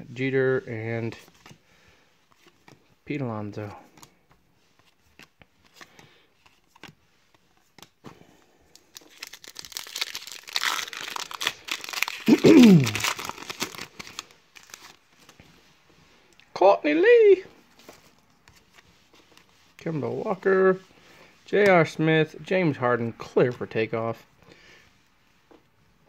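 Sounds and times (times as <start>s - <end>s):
foil wrapper tearing and crinkling: 8.8s - 15.0s
falling vocal sound: 12.3s - 13.1s.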